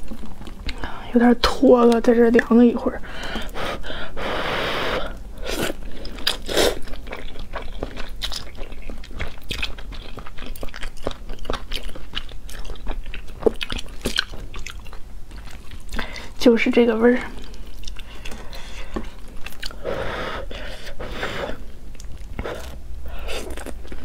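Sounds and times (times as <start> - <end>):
wet chewing clicks: 0.0 - 1.0, 5.1 - 16.3, 17.3 - 19.8, 21.9 - 24.0
person slurping noodles: 3.6 - 6.9, 19.6 - 21.7.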